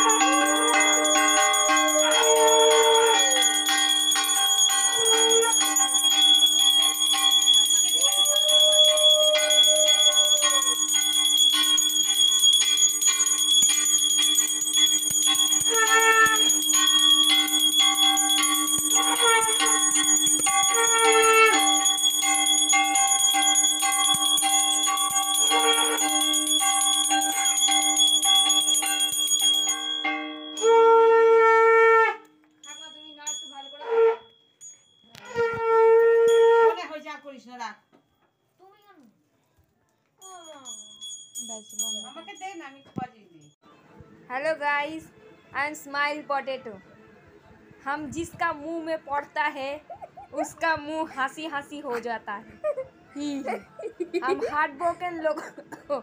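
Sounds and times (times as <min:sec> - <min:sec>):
hand bell ringing: 0:00.0 - 0:31.0, 0:32.3 - 0:35.4, 0:40.2 - 0:43.6
conch shell blasts: 0:15.6 - 0:16.6.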